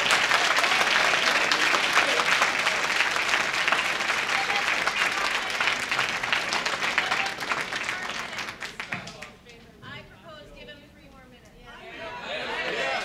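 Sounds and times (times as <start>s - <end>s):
audience clapping: 0.0s - 9.4s
voices: 6.7s - 13.0s.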